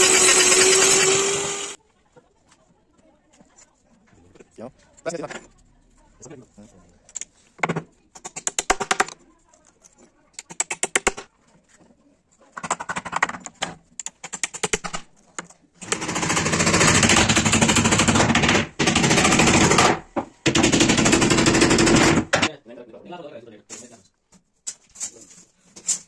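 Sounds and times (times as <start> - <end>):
power tool rattling: 0.0 - 1.8, 15.8 - 22.5
hammer tapping nails: 15.8 - 22.5.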